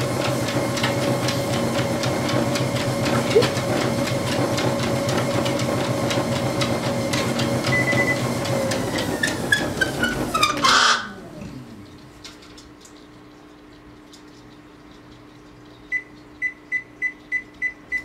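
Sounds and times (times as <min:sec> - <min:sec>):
treadmill motor hum: 0:00.0 - 0:12.6
dog paws on treadmill belt: 0:00.0 - 0:13.1
motor falling whine: 0:07.8 - 0:12.1.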